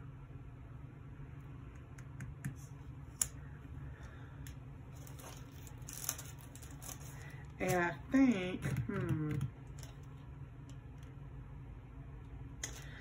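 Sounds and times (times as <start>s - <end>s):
steady low hum: 0.0s - 13.0s
paper rustle: 4.9s - 7.8s.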